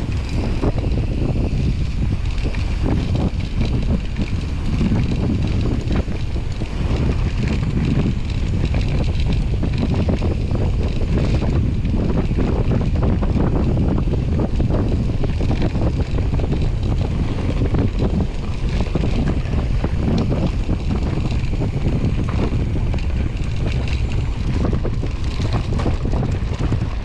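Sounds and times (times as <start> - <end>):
bike tyres clattering over rocks: 0.0 - 27.0
wind buffeting microphone: 0.0 - 27.0.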